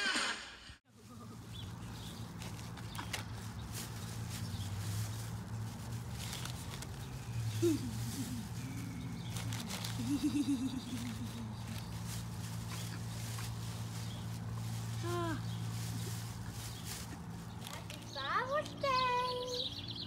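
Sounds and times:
paper bag and tissue rustling: 0.9s - 19.2s
steady low hum: 0.9s - 20.0s.

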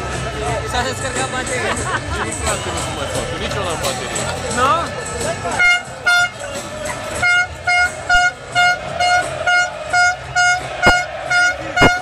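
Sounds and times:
air horn toots: 5.6s - 6.5s, 7.1s - 12.0s.

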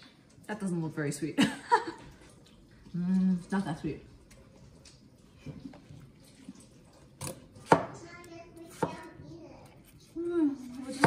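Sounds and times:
knife chopping watermelon: 7.2s - 8.0s, 8.6s - 9.1s.

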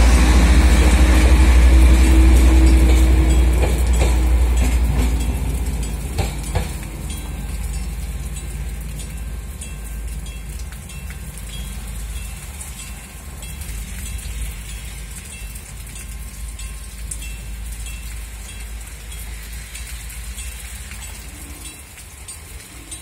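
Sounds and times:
distant passenger train: 0.0s - 23.0s
rain pattering on ground: 0.0s - 23.0s.

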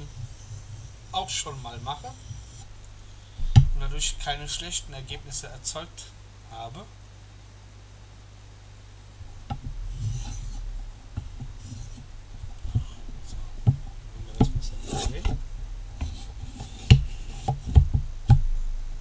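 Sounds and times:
knife scraping on whetstone: 0.0s - 2.7s, 9.9s - 10.6s, 14.3s - 15.4s, 16.0s - 17.8s
sharp clicks and hard knocks: 3.4s - 4.0s, 9.2s - 18.6s.

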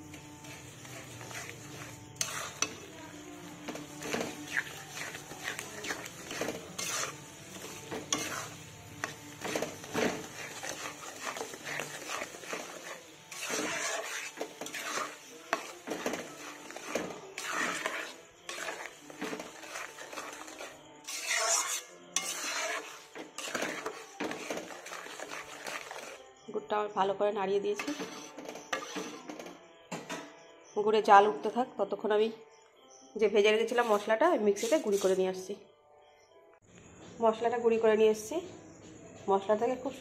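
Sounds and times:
metal spoon scraping a pan: 0.0s - 26.2s, 27.7s - 29.6s, 33.6s - 35.2s
syrup bubbling and sizzling: 0.0s - 26.2s.

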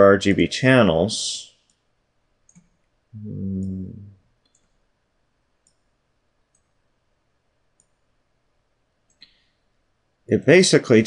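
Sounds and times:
computer mouse clicking: 2.4s - 2.8s, 4.4s - 4.8s, 5.6s - 5.9s, 6.5s - 6.8s, 7.8s - 8.0s
man humming: 3.2s - 4.2s.

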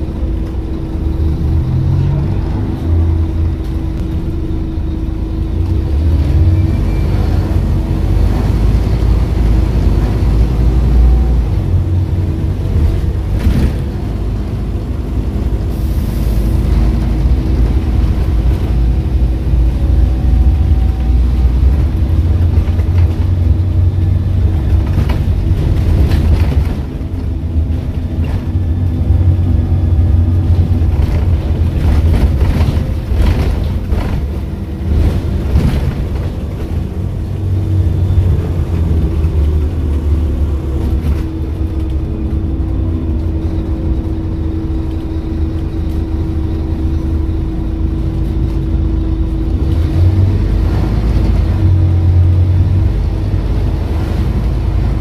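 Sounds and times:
bus engine droning: 0.0s - 55.0s
body rattles and knocks: 22.0s - 39.8s.

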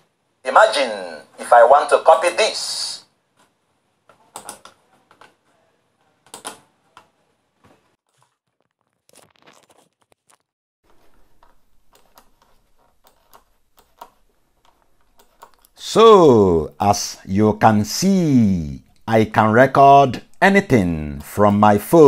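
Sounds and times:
faint clicks and taps: 3.3s - 5.6s, 10.9s - 15.8s.

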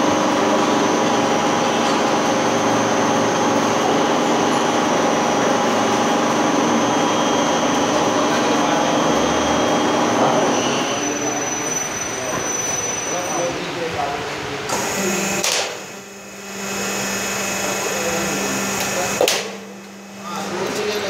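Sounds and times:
roll forming machine humming: 0.0s - 21.0s
thin high whine: 6.8s - 13.9s, 14.7s - 21.0s.

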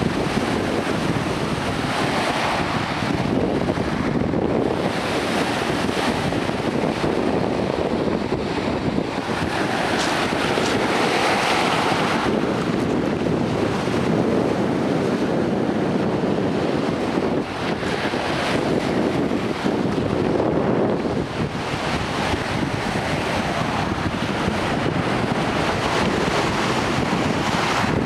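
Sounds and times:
waves washing over pebbles: 0.0s - 28.0s
wind buffeting microphone: 0.0s - 28.0s.

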